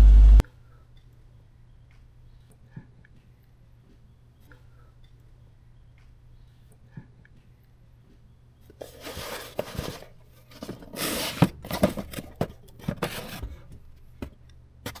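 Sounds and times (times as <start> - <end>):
cardboard boxes scraping: 8.8 - 13.7.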